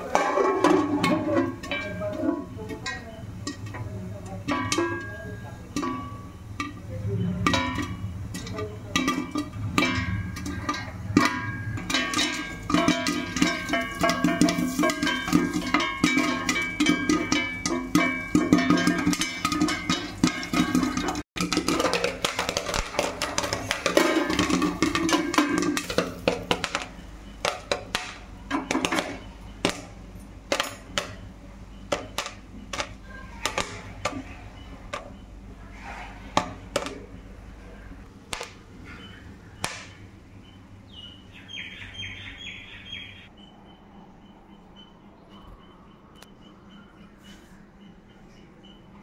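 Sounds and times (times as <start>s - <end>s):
popcorn popping in metal pot: 0.0s - 35.6s, 36.3s - 38.8s, 39.6s - 40.1s.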